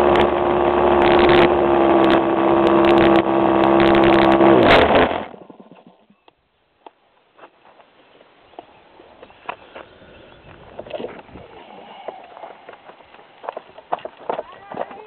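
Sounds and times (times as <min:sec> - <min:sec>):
model airplane engine running: 0:00.0 - 0:05.7.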